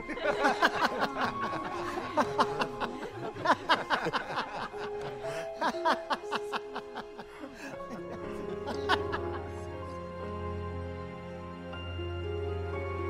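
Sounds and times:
crowd laughing: 0.0 - 9.9
background music held notes: 0.0 - 13.0.

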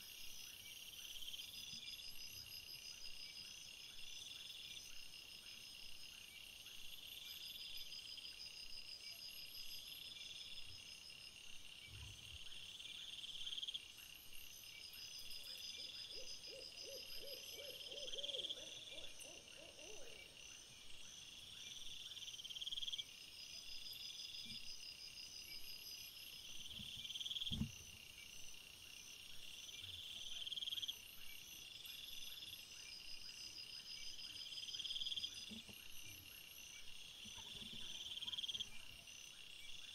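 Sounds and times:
crickets and insects chirping: 0.0 - 39.9
thump: 26.7 - 27.8.

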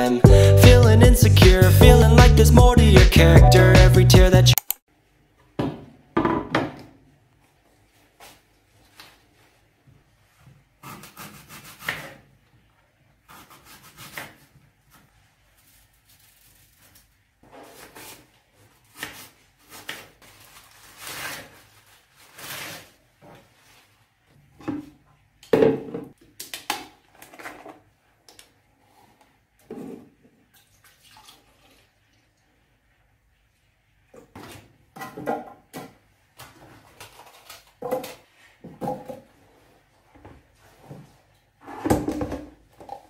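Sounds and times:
knife cutting apple on wooden board: 10.8 - 12.3, 13.3 - 14.6.

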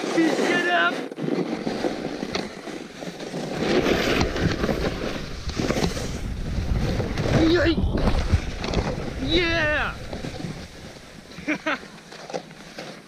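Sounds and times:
wind rumbling on microphone: 3.5 - 11.3.

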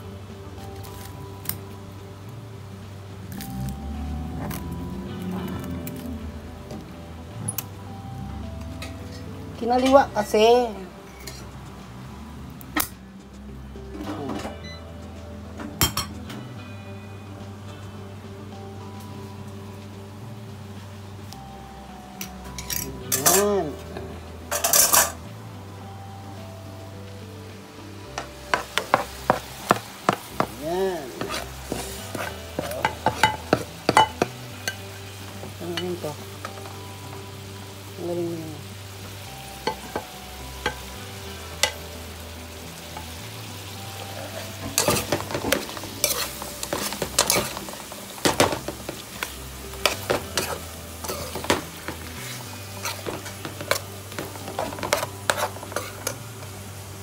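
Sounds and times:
metal spoon scraping a pan: 24.5 - 25.2, 31.1 - 34.9, 44.2 - 56.4
food sizzling in a pan: 27.3 - 57.0.

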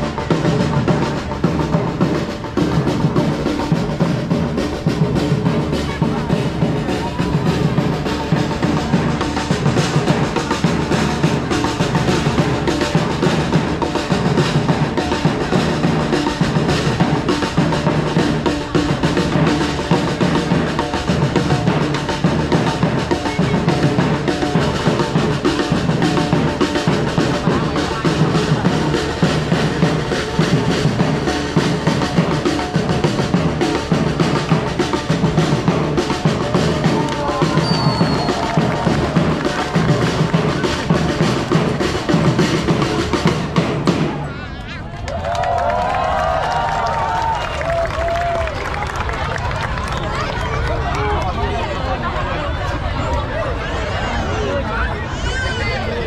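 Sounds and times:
music with dense drumming: 0.0 - 44.4.

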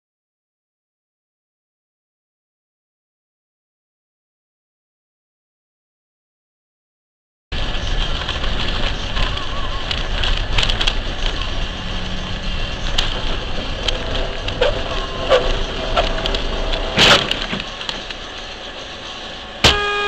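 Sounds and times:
car road and engine noise: 7.5 - 20.0
loud sharp sound: 19.6 - 20.0.

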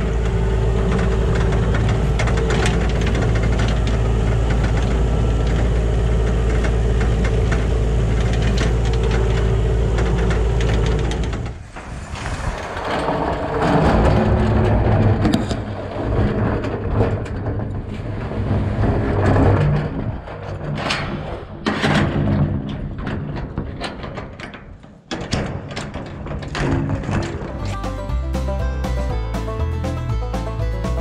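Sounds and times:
diesel engine knocking: 0.0 - 11.5
rough noisy rumble: 0.0 - 31.0.

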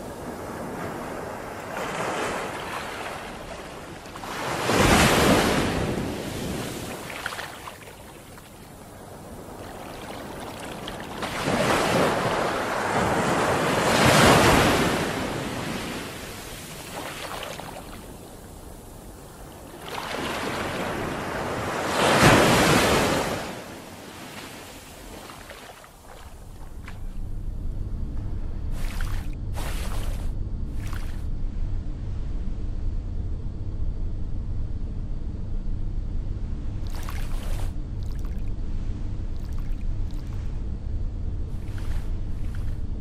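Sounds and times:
surf surges: 0.0 - 26.6
waves washing on sandy beach: 0.0 - 27.0.

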